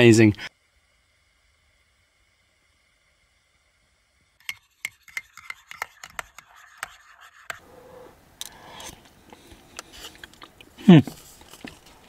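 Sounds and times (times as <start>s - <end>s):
spoon scraping paper pot: 4.4s - 7.6s
spoon tapping paper pot: 4.4s - 7.6s.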